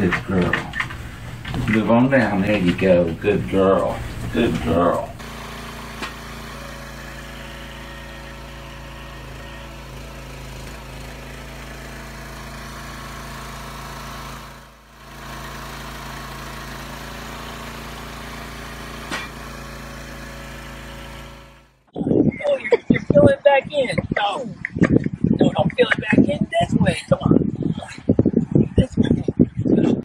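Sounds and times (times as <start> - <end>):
small petrol engine running: 0.0 - 21.9.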